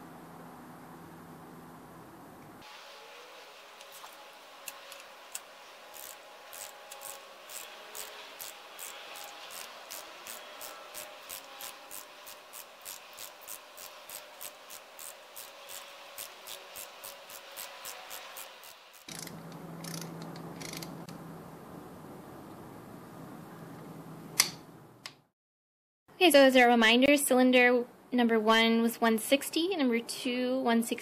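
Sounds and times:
socket wrench rubbing scrape: 3.8 - 21.0.

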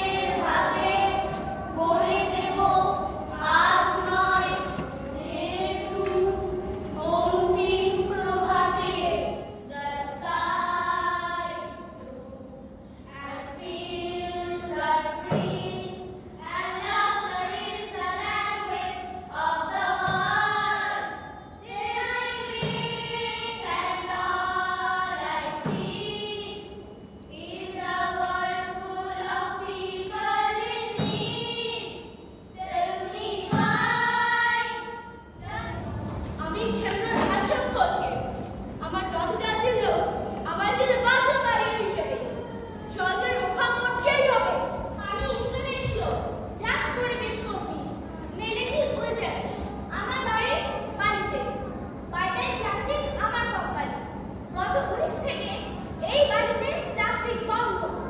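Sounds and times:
children singing in chorus: 0.0 - 38.4.

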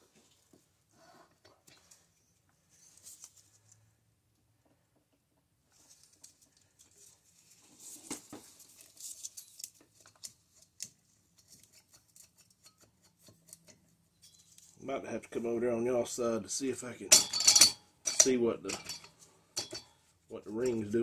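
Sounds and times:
metal clicks taps and scraping: 9.7 - 14.7, 17.1 - 20.0.

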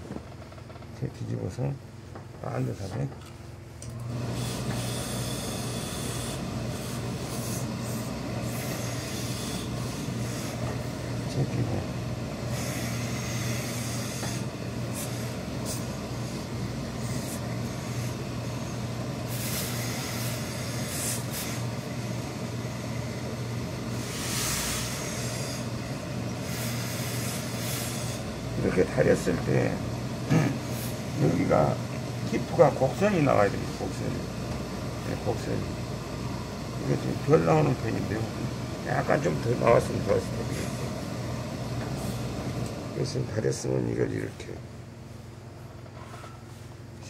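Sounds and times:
low machine hum: 0.0 - 47.0
steam iron hissing: 4.2 - 11.2, 12.4 - 29.6, 30.3 - 31.8.

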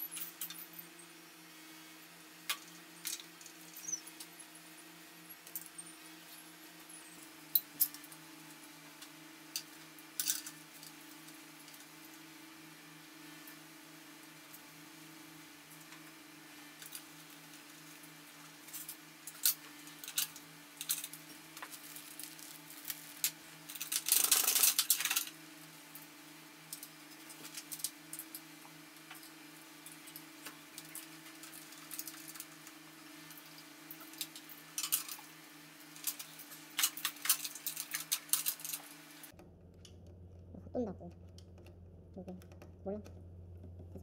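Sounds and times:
steady low hum: 27.8 - 44.0
metal parts clinking: 34.3 - 35.2, 36.0 - 38.8.

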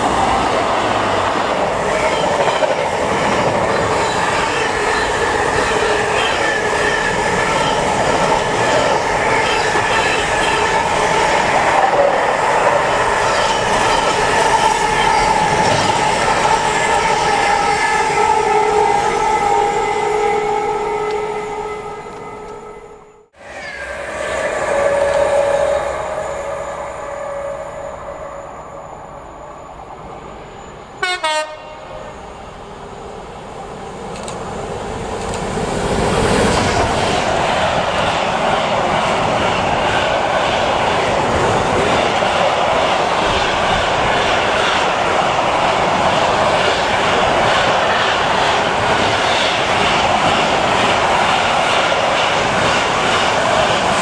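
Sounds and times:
train wheels rumbling and clattering: 0.0 - 18.2, 33.9 - 54.0
train horn blasts: 16.9 - 28.6, 31.0 - 32.1.

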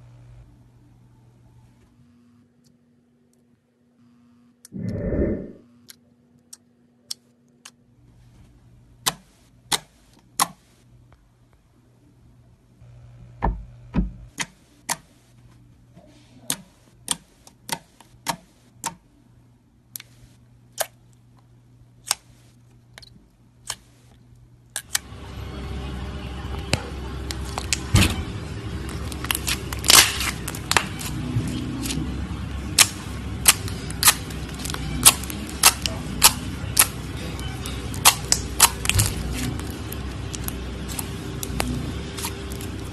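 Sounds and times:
low hum: 4.7 - 5.7.

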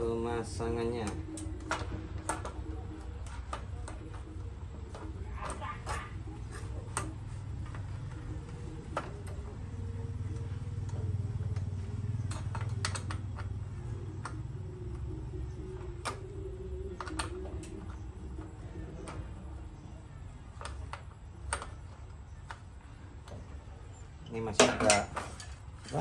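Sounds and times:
steady low hum: 0.0 - 26.0
metallic clicks and taps: 10.3 - 15.4.

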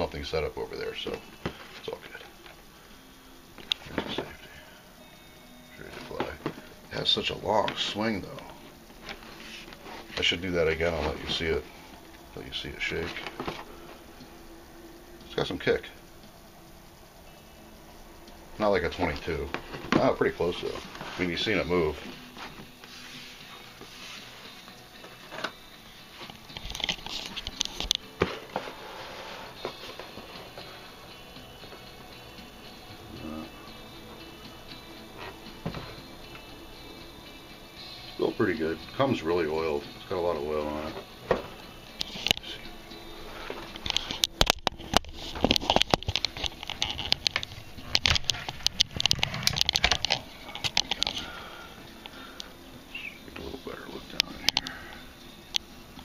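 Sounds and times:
handling noise clicks and taps: 43.8 - 51.2.

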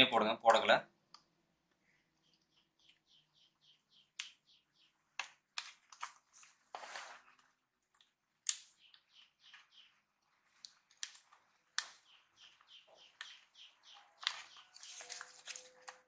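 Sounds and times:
bird chirping: 1.8 - 5.2, 8.5 - 11.2, 11.8 - 16.0
faint clicks and taps: 5.1 - 6.5.

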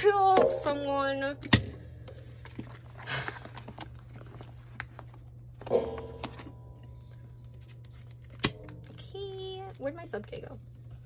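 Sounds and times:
plastic rustling: 2.2 - 5.6.

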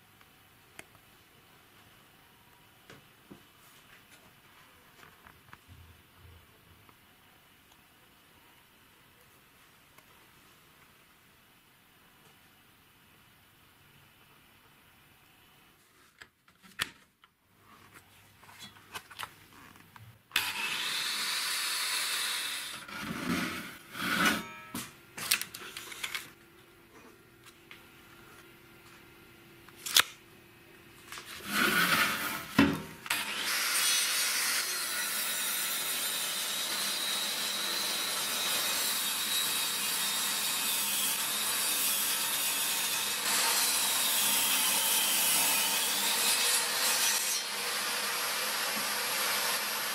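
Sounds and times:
table saw motor running: 20.4 - 24.4
saw ripping wooden beam: 31.4 - 49.9.

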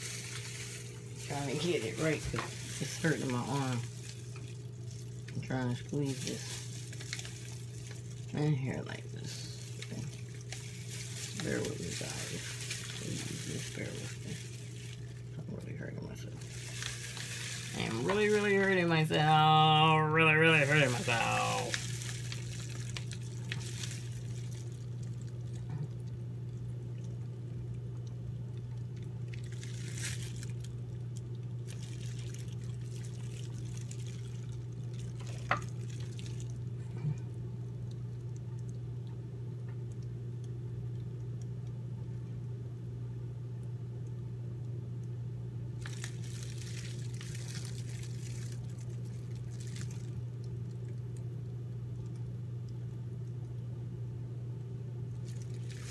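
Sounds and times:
plastic wrap rustling: 0.0 - 25.6, 29.3 - 30.8, 31.5 - 36.6, 45.8 - 50.2, 55.2 - 55.9
steady low hum: 0.0 - 55.9.

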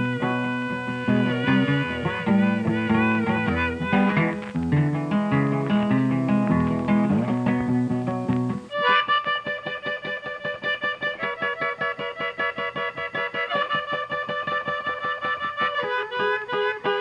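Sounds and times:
bass line: 0.0 - 8.7
plucked guitar music: 0.0 - 17.0.

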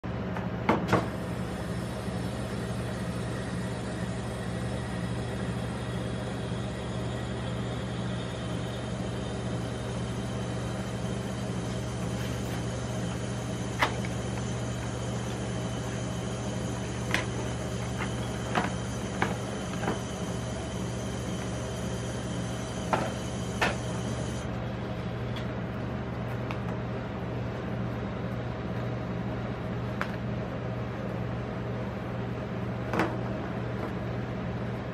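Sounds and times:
refrigerated cold plate humming: 0.0 - 34.9.

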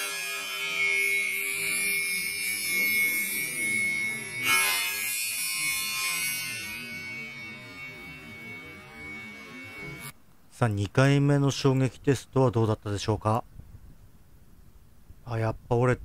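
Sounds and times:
spinning saw blade tone: 0.0 - 10.2.

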